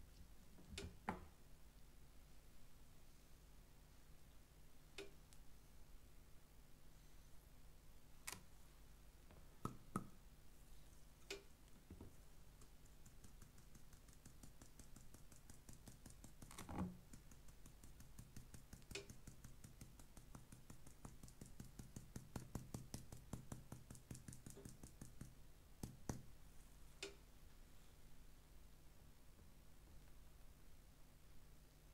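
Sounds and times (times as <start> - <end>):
sugar shaker ticking: 12.5 - 25.3.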